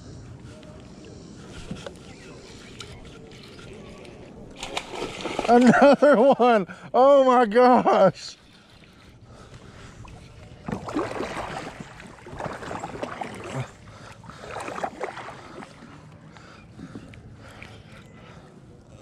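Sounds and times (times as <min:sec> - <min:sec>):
water splashing: 0:04.5 - 0:05.9, 0:10.0 - 0:16.0.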